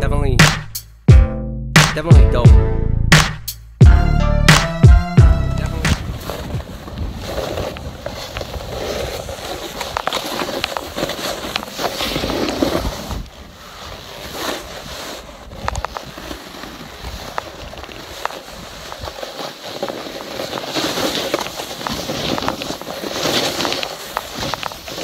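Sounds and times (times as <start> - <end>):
wind: 5.5 - 25.0
microphone handling noise: 5.6 - 13.4
footsteps crunching in snow: 5.6 - 25.0.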